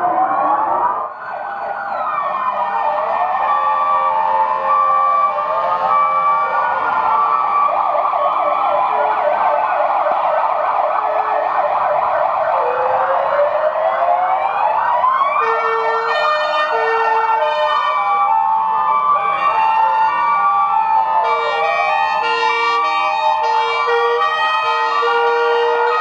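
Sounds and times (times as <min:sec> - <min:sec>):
ambulance sirens wailing: 0:00.0 - 0:26.0
two-tone siren: 0:00.0 - 0:26.0.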